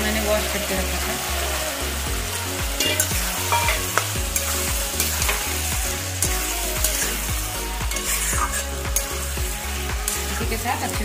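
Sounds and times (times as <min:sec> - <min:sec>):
peas sizzling in a wok: 0:00.0 - 0:11.0
steel spatula scraping a pan: 0:02.8 - 0:05.6, 0:07.9 - 0:09.1.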